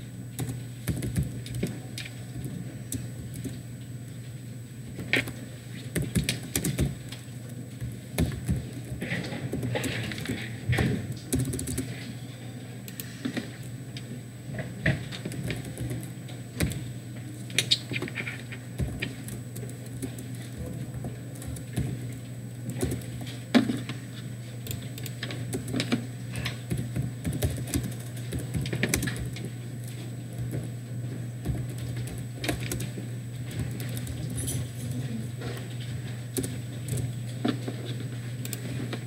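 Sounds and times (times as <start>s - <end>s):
steady low hum: 0.0s - 39.0s
typing on keyboard: 0.4s - 2.1s, 6.0s - 7.2s, 11.3s - 11.9s, 15.1s - 16.8s, 18.8s - 23.3s, 24.7s - 29.5s, 31.4s - 34.4s.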